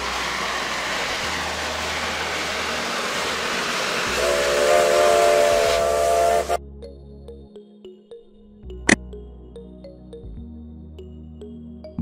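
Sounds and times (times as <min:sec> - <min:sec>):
steam locomotive hissing: 0:00.0 - 0:06.6
steam whistle chord: 0:00.0 - 0:06.6.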